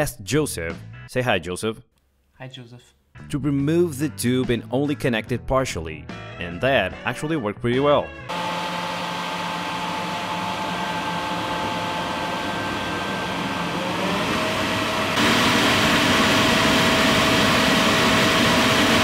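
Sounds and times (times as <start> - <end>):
jet engine combustion roar: 8.3 - 19.0
leaf blower motor whine: 8.3 - 19.0.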